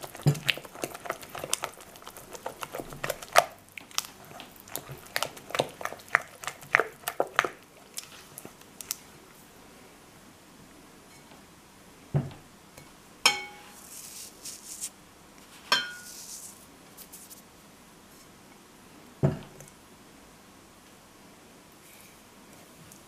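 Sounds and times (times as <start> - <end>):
ceramic clinking against glass bowl: 13.3 - 13.7, 15.7 - 16.1
soft rustle of grains: 13.7 - 17.6.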